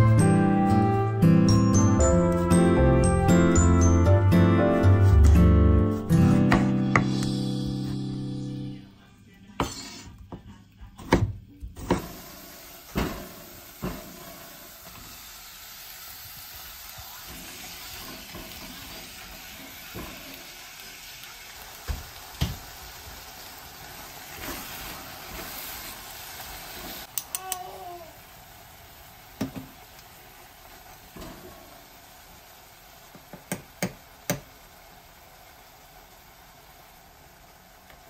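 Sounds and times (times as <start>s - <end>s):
vegetables sizzling in a pot: 0.0s - 38.0s.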